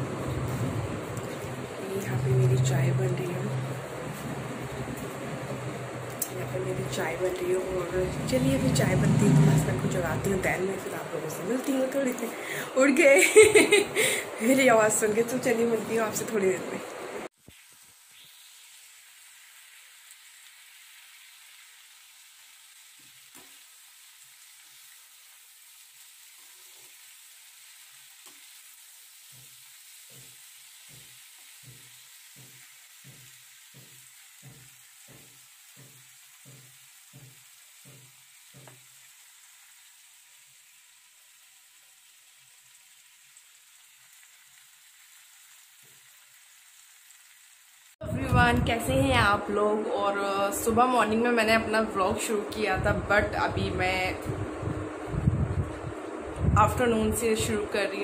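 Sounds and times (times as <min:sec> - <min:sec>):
vegetables sizzling in oil: 0:00.0 - 0:58.0
spatula stirring in pan: 0:17.4 - 0:39.5.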